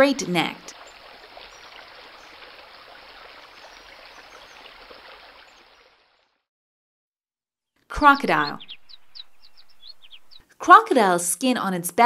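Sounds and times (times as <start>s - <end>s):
running water trickling: 0.0s - 6.4s.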